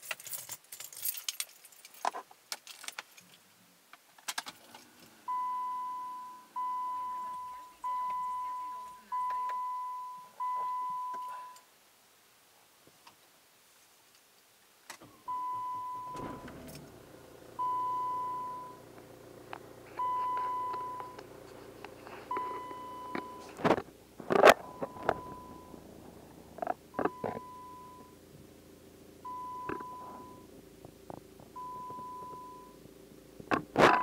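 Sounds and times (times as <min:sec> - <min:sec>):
car engine idling: 0:04.6 - 0:09.2, 0:15.0 - 0:34.0
dashboard warning chime beeping: 0:05.3 - 0:11.6, 0:15.1 - 0:23.6, 0:24.5 - 0:26.1, 0:26.9 - 0:28.2, 0:29.2 - 0:30.5, 0:31.6 - 0:32.8.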